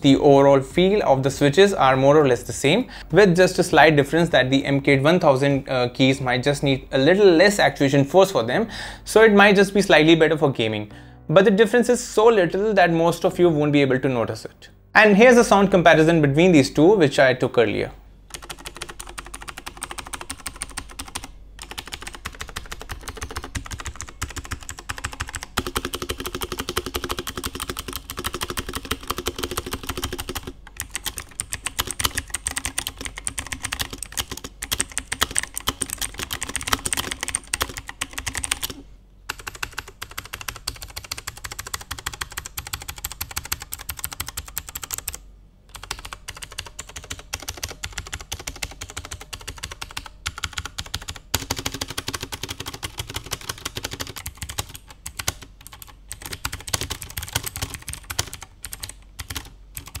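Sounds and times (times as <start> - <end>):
typing on clicky mechanical keyboard: 18.3 - 60.0.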